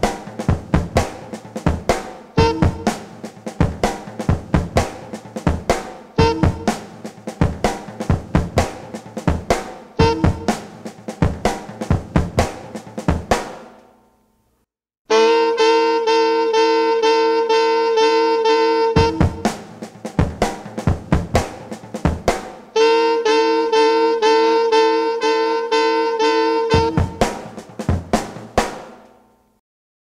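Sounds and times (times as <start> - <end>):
sharp drum hits: 0.0 - 13.8
pulsing pitched riff: 6.2 - 6.8, 10.0 - 10.6.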